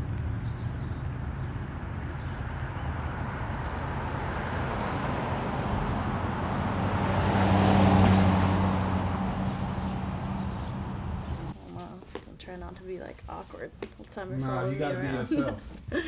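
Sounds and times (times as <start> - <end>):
street traffic noise: 0.0 - 16.0
car passing close by: 2.4 - 11.5.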